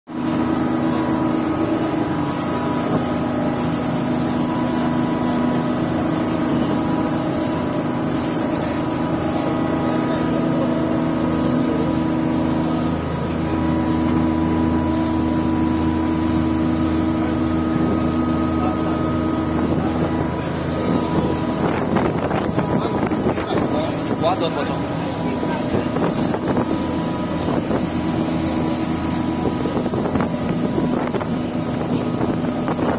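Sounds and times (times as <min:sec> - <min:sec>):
boat engine humming: 0:00.1 - 0:32.9.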